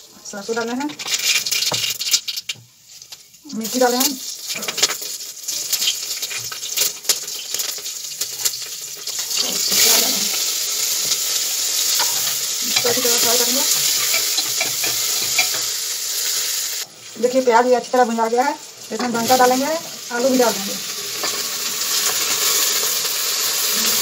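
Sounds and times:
spices sizzling in hot oil: 0.0s - 24.0s
metal spatula scraping a pan: 11.0s - 15.8s.

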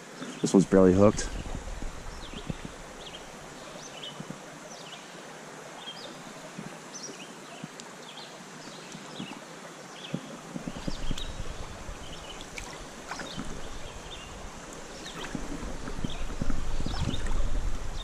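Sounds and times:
creek flowing: 0.0s - 18.0s
small birds chirping: 0.2s - 5.1s, 10.0s - 18.0s.

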